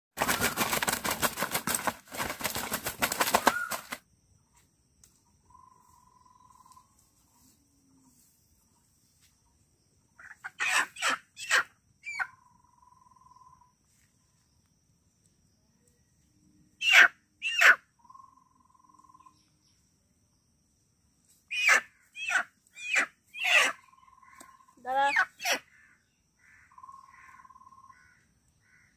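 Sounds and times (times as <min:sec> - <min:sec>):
hen squawking in distress: 0:21.5 - 0:23.8.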